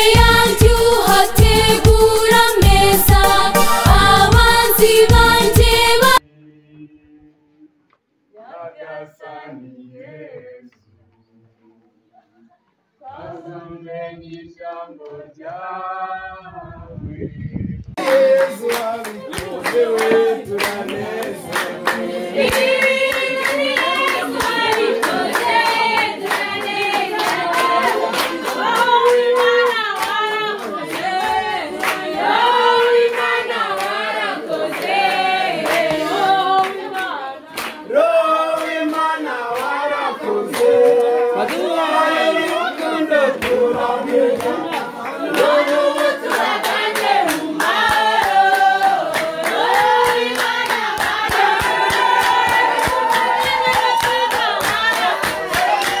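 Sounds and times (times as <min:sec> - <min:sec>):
rhythmic hand clapping: 0:00.0 - 0:06.2, 0:18.0 - 0:56.0
women singing together: 0:00.0 - 0:06.2, 0:08.3 - 0:10.8, 0:12.3 - 0:17.3, 0:18.0 - 0:56.0
single voice singing: 0:00.0 - 0:07.7, 0:08.4 - 0:10.9, 0:13.0 - 0:56.0.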